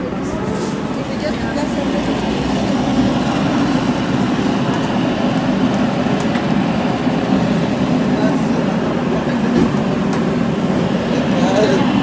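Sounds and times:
crowded restaurant din: 0.0s - 12.0s.

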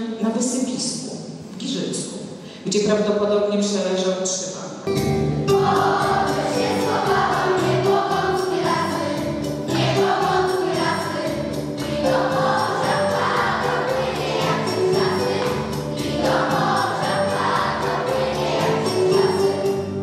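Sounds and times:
backing track with steady beat: 4.9s - 20.0s
children's choir singing: 5.5s - 19.9s.

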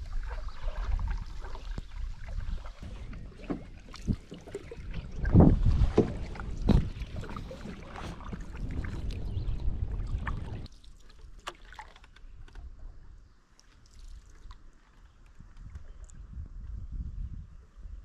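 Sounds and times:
wind rumbling on microphone: 0.0s - 10.8s, 14.4s - 18.0s
paddles splashing in water: 0.0s - 12.7s
water drips and ticks: 13.5s - 16.2s.

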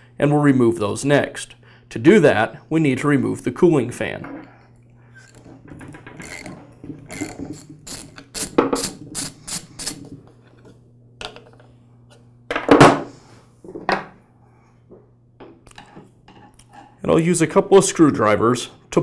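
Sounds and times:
ratchet wrench clicking: 6.2s - 6.5s, 7.1s - 10.0s.

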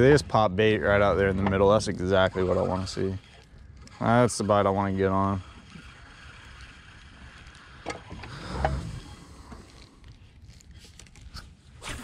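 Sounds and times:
fishing reel clicking: 0.9s - 10.1s.

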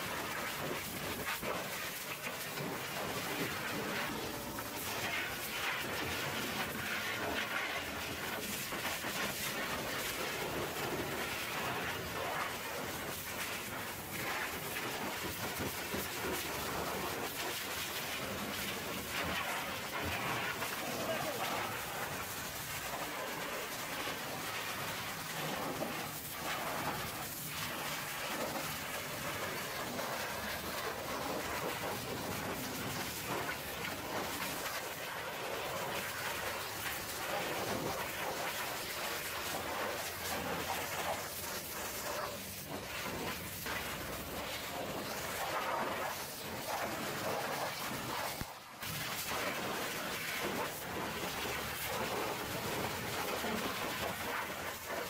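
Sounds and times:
pressure washer jet hissing on metal: 0.0s - 55.0s
pressure washer spraying metal: 40.0s - 44.3s.

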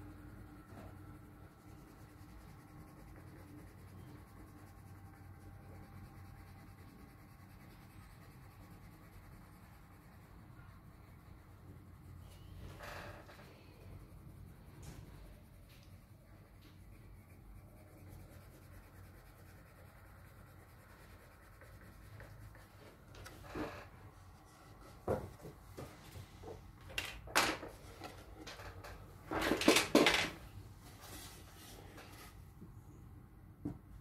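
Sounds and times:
pencil scratching on card: 0.0s - 24.8s
pencils knocking on wooden board: 26.8s - 30.4s.

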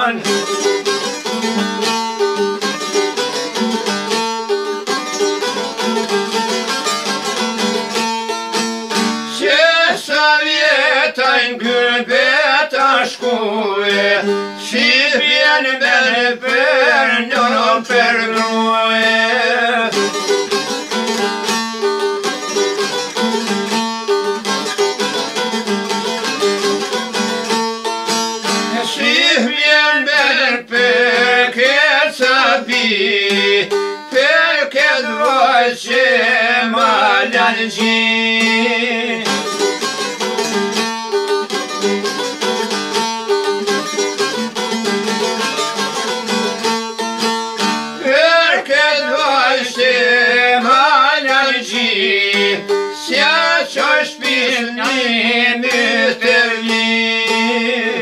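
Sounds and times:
men singing folk melody: 0.0s - 0.6s, 9.3s - 20.7s, 28.7s - 40.0s, 44.8s - 46.6s, 48.0s - 58.0s
plucked lutes: 0.0s - 58.0s.

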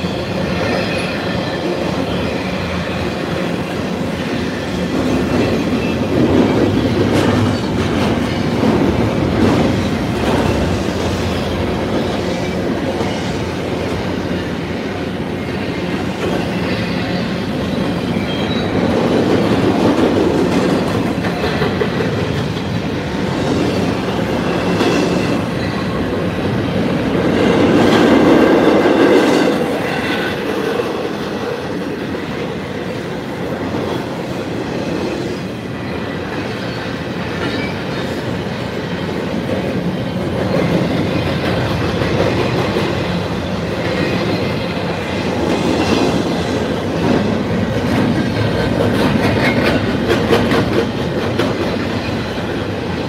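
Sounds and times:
train wheels rolling on track: 0.0s - 53.0s
faint high wheel squeal: 16.4s - 18.8s.

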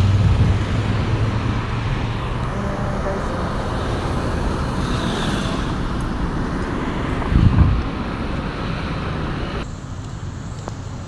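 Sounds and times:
wind buffeting microphone: 0.0s - 2.6s, 3.4s - 9.6s
road traffic passing: 0.0s - 11.0s.

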